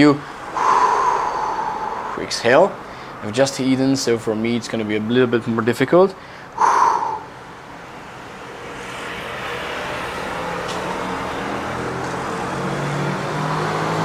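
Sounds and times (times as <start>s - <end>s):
road noise: 0.0s - 14.0s
vehicle engine approaching: 0.2s - 3.4s, 6.6s - 14.0s.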